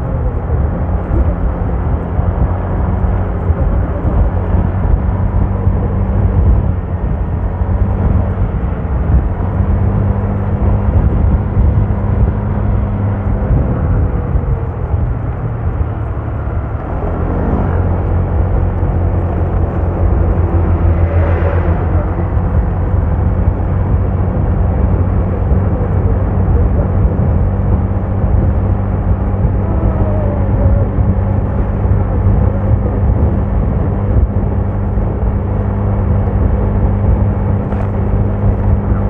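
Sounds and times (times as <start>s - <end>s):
road and wind noise: 0.0s - 39.0s
vehicle engine running: 0.0s - 39.0s.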